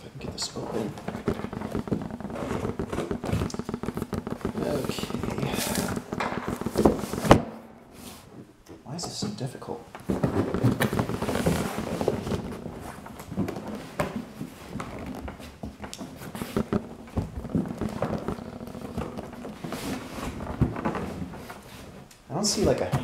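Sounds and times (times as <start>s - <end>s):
sharp clicks and knocks: 0.0s - 7.5s
cardboard scraping and rubbing: 0.1s - 8.5s, 9.1s - 23.0s.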